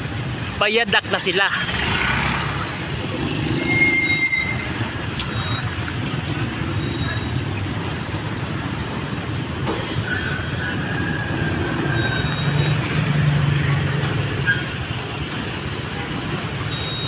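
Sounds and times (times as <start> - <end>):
vehicle engines in slow traffic: 0.0 - 17.0
thin high squeal: 3.6 - 5.6, 8.5 - 10.6.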